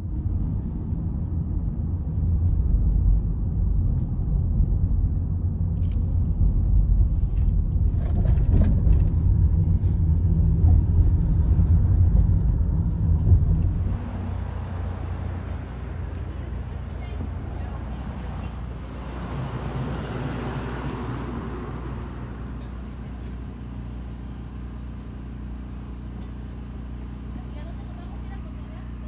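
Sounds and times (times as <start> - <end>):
car driving on road interior: 0.0 - 29.0
street ambience: 0.0 - 29.0.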